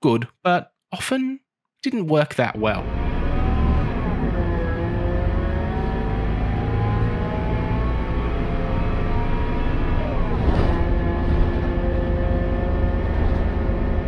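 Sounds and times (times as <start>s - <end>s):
bus diesel engine drone: 2.6s - 14.0s
whining whir of bus: 2.8s - 14.0s.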